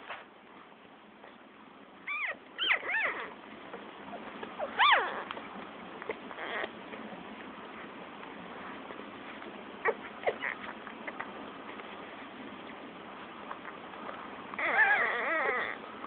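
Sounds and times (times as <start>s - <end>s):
puppies squealing: 2.1s - 3.4s, 4.1s - 5.4s, 6.1s - 6.8s, 9.8s - 11.3s, 14.6s - 15.9s.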